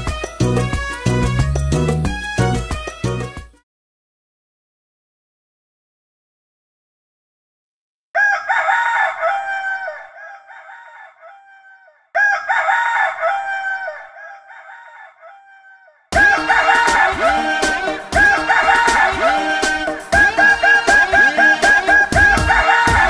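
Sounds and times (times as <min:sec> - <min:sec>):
music: 0:00.0 - 0:03.6, 0:16.2 - 0:23.0
rooster crowing: 0:08.2 - 0:23.0.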